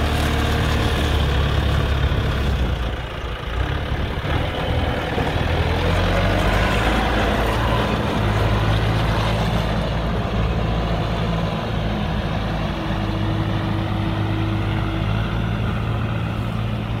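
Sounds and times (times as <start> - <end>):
diesel engine running: 0.0 - 17.0.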